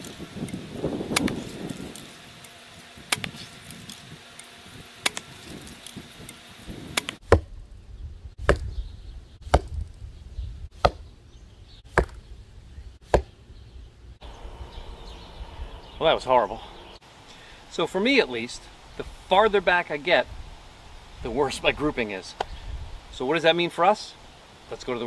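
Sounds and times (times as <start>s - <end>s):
bow being shot: 1.0s - 2.0s
arrows striking foam target: 8.4s - 8.8s, 9.4s - 10.0s, 10.8s - 11.1s, 11.9s - 12.2s, 13.0s - 13.4s.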